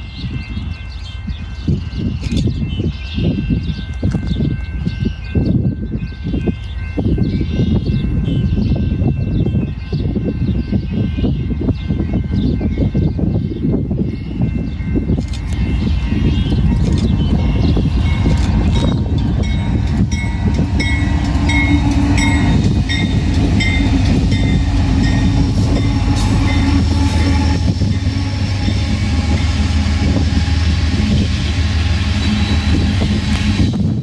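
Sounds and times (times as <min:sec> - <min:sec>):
crossing bell dings: 0:00.0 - 0:29.6
diesel locomotive engines droning: 0:00.0 - 0:34.0
train wheels rolling: 0:14.4 - 0:34.0.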